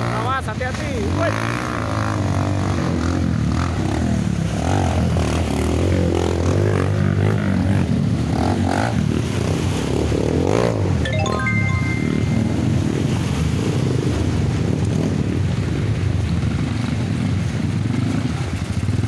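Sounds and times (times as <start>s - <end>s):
dirt bike engines revving: 0.0s - 10.9s
wheels splashing through water: 0.0s - 11.1s, 11.8s - 19.0s.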